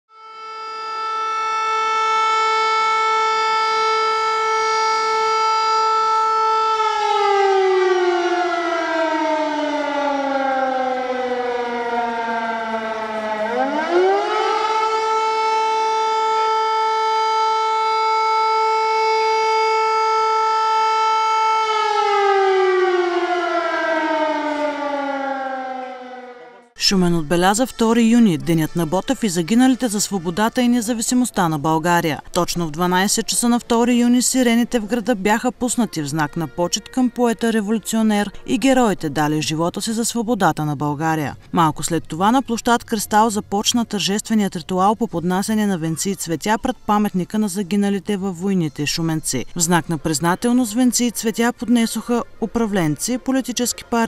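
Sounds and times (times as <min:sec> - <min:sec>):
sirens sounding long tone: 0:00.1 - 0:31.6.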